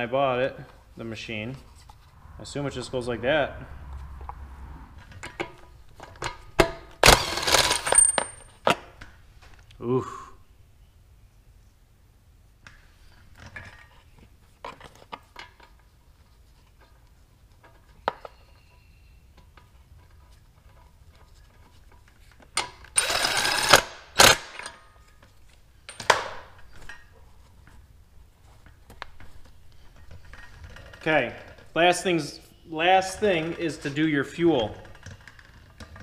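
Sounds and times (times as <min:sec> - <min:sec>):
ratchet clicking: 0:23.0 - 0:24.4.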